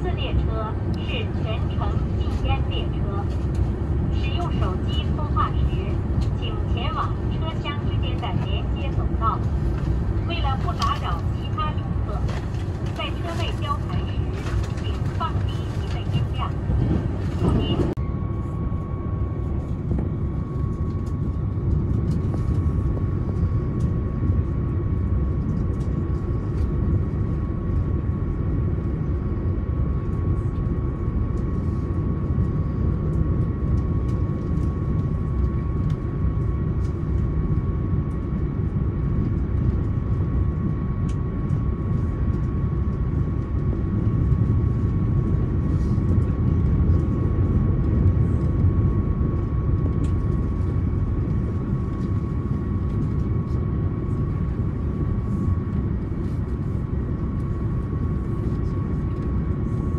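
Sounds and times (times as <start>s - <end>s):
diesel train rumble: 0.0s - 18.6s
constant high whine: 0.0s - 59.9s.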